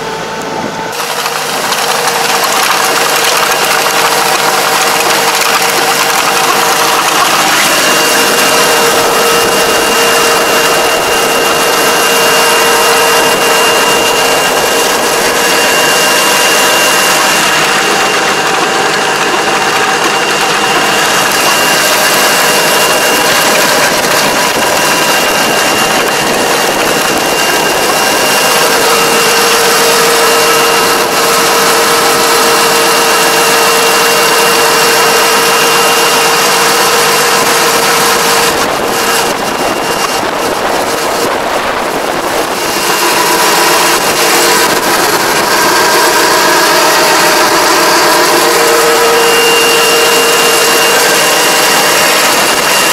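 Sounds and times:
machine churning wet mud: 0.0 - 52.9
steady high whine: 0.0 - 52.9
tractor engine running: 0.0 - 52.9.

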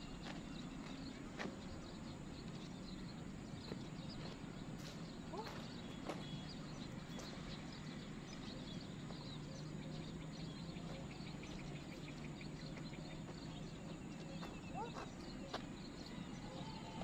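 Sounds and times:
faint bird chirps: 0.0 - 17.0.

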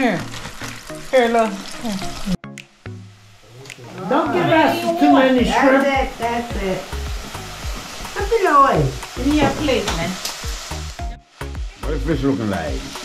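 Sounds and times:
shrimp sizzling in hot oil: 0.0 - 13.0
voices: 3.5 - 7.0, 8.2 - 10.2.

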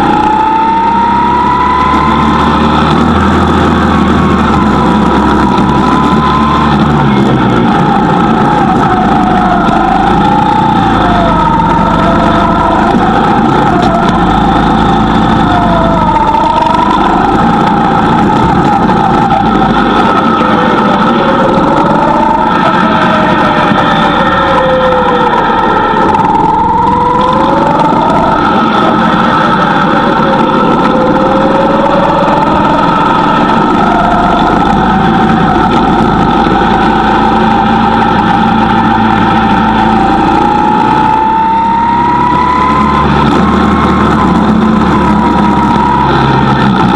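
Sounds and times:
go-kart engine running: 0.0 - 46.9.

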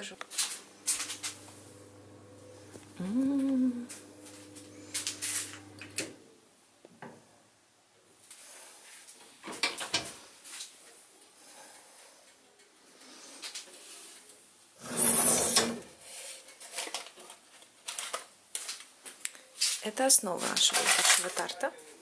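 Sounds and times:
oven humming: 0.3 - 6.2.

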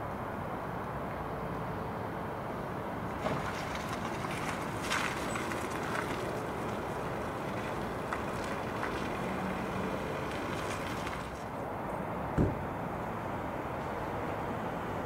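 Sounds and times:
outdoor background rumble: 0.0 - 15.0.

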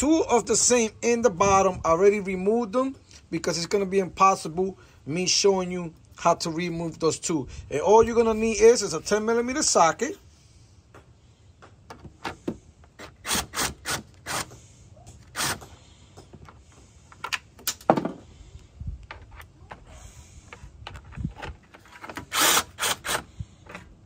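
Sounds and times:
impact driver bursts: 13.0 - 14.6, 15.2 - 15.8, 22.1 - 23.3.

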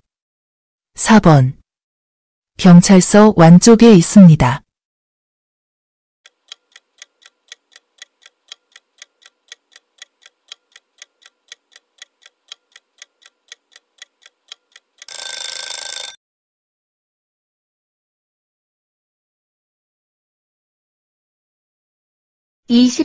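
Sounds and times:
clock ticking: 6.3 - 16.2
alarm ringing: 15.0 - 16.2.

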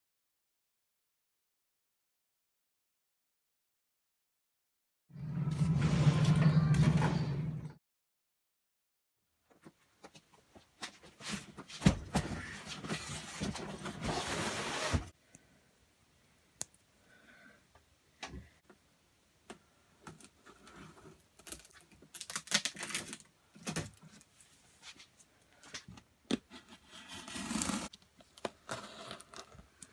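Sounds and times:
cardboard box scraping and rustling: 12.4 - 15.1, 26.6 - 27.9.

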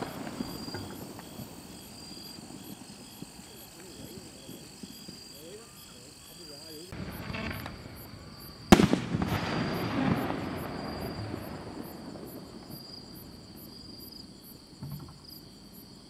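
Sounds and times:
crickets chirping: 0.0 - 16.0
firework shell bang: 6.9 - 11.3
rumbling echo: 6.9 - 12.6
faint thump: 14.8 - 15.3.

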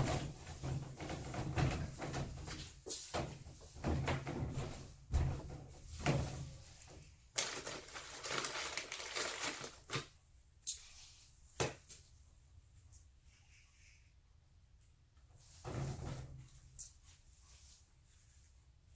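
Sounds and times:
rustling and scraping: 0.0 - 10.2, 15.3 - 18.7.

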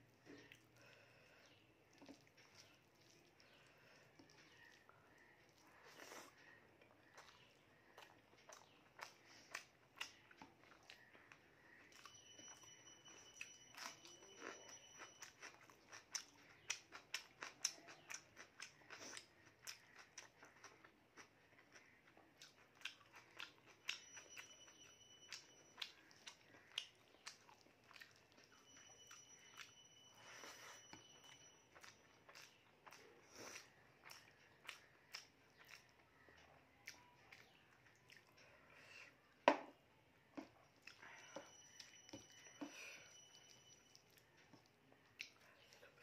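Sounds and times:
chewing and lip smacks: 1.4 - 12.2, 13.1 - 24.4, 25.2 - 29.8, 31.0 - 38.6, 43.2 - 46.0.

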